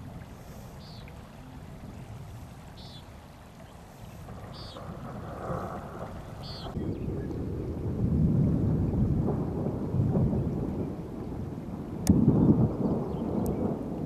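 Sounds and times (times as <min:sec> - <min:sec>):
thunder rumbling: 0:04.1 - 0:14.0
sharp thunder crack: 0:04.2 - 0:14.0.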